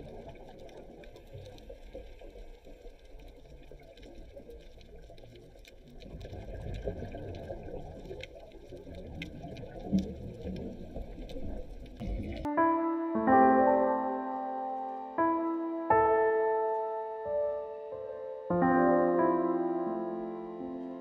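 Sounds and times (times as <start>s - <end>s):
underwater rush of water: 0.0s - 12.5s.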